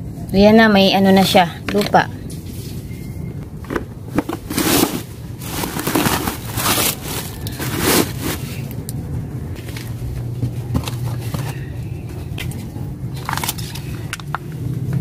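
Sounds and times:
plastic sacks rustling and scraping: 3.7 - 8.7.

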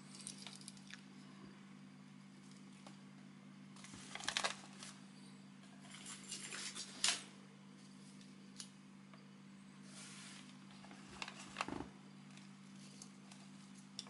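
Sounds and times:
steady low hum: 0.0 - 14.0
plastic bag crinkling: 3.8 - 5.0.

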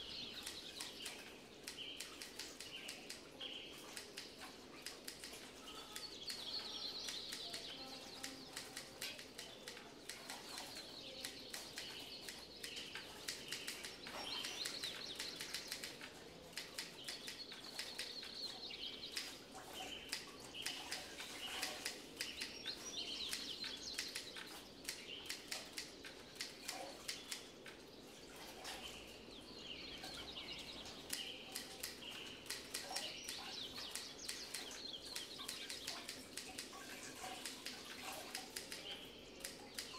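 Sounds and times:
birds chirping: 0.0 - 39.9.

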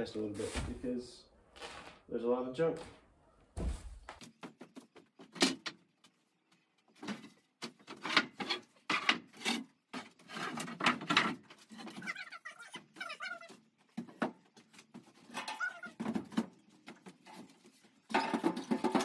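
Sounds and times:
wooden boards knocking and scraping: 6.9 - 12.2, 13.0 - 19.0.

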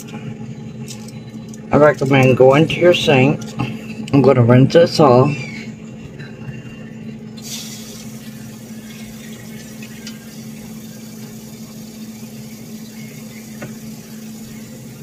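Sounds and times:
water running from tap: 7.4 - 15.0.

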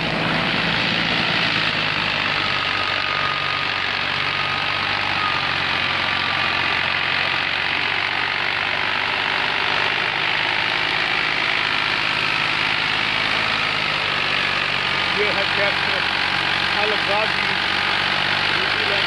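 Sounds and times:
rice thresher running: 0.0 - 19.0.

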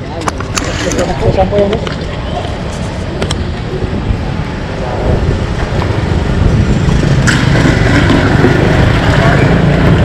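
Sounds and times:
street traffic: 0.0 - 10.0
motorcycle engine running: 4.8 - 10.0.

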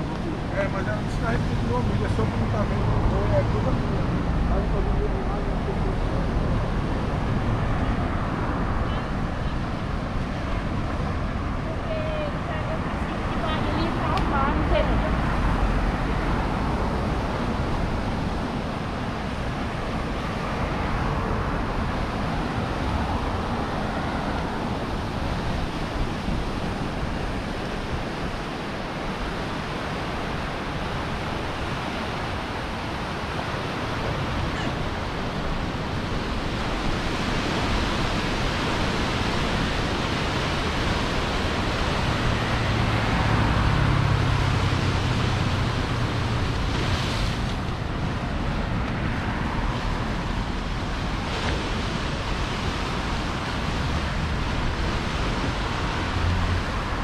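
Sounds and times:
street ambience rush: 0.0 - 57.0.

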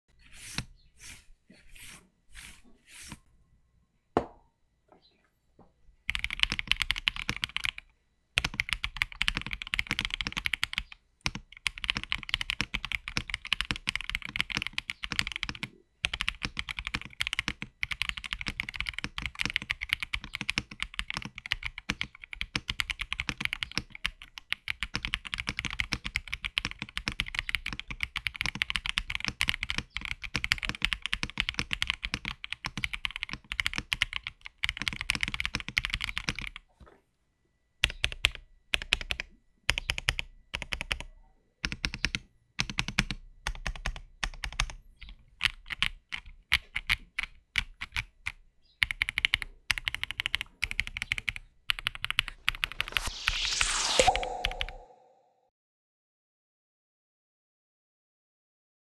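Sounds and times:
mechanical keyboard typing: 6.1 - 7.8, 8.4 - 36.6, 37.8 - 52.8.

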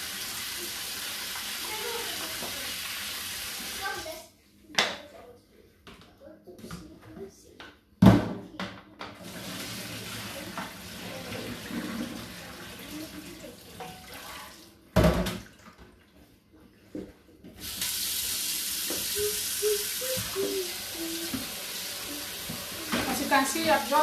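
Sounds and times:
water pouring into steel sink: 9.2 - 14.7.

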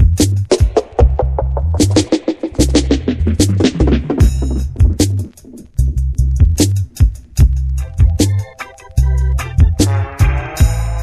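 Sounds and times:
dub reggae music: 0.0 - 11.0.

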